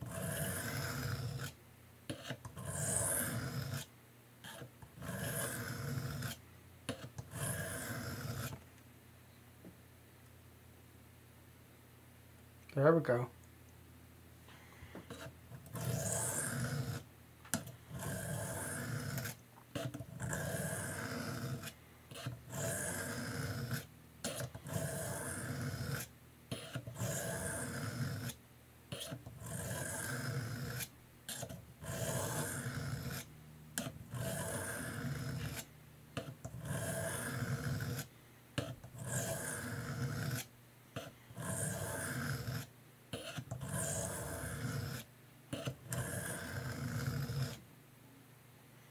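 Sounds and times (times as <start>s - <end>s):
knife scraping on sharpening plate: 2.1s - 3.8s, 4.4s - 8.6s, 25.4s - 27.1s, 28.2s - 29.7s, 43.2s - 44.3s.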